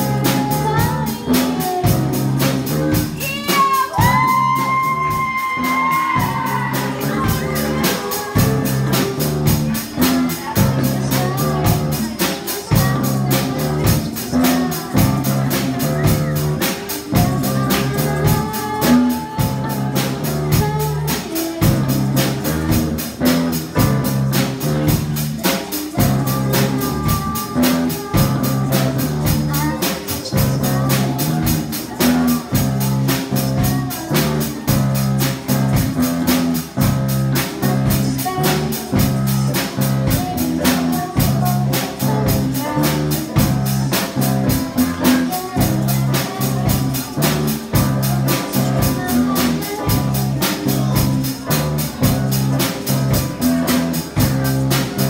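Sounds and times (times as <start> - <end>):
drum kit beat: 0.0 - 55.0
girl singing: 0.0 - 55.0
rock band playing: 0.0 - 55.0.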